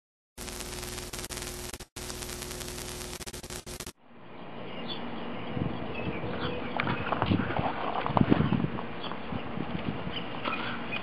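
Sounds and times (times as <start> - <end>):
hissing static: 0.4 - 4.0
steady hum: 0.4 - 4.7
outdoor background sound: 0.4 - 11.0.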